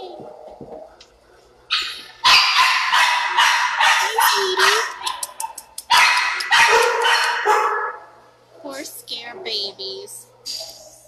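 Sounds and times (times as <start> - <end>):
dogs barking: 0.0 - 8.8.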